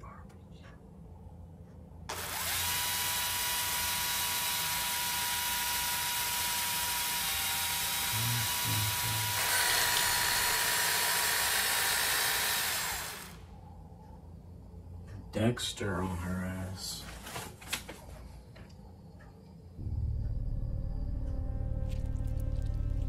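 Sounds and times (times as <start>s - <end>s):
power tool whining: 2.1s - 13.5s.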